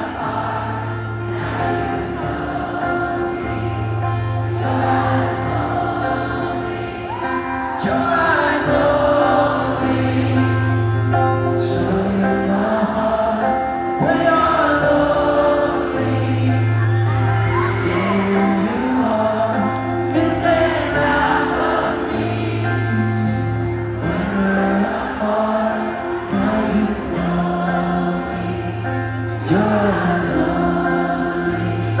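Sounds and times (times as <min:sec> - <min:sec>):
acoustic guitar: 0:00.0 - 0:32.0
man singing: 0:07.6 - 0:32.0.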